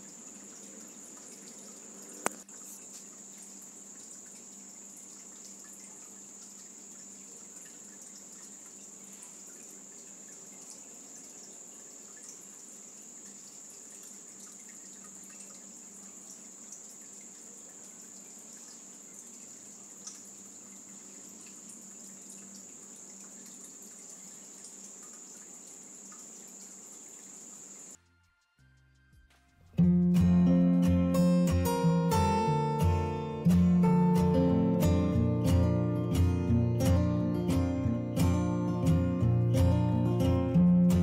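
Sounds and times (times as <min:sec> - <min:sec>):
faint ticks: 0:00.0 - 0:29.6
high-pitched hiss: 0:00.0 - 0:41.0.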